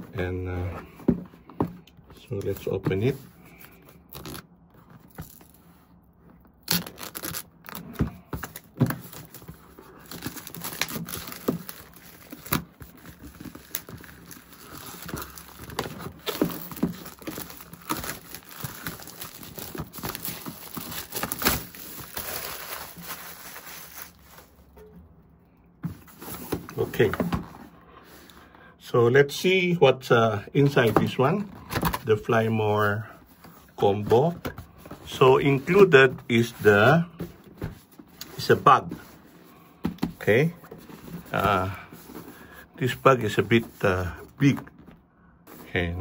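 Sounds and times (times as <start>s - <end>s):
plastic wrap tearing and crinkling: 6.6s - 24.7s.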